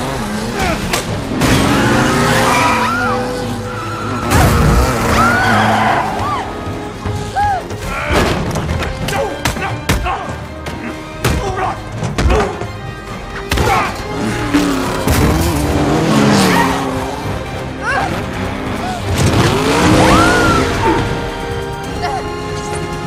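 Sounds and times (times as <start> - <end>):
squealing tyres: 0.0 - 7.5
car engines: 0.0 - 9.1, 10.3 - 23.0
action film music score: 0.0 - 23.0.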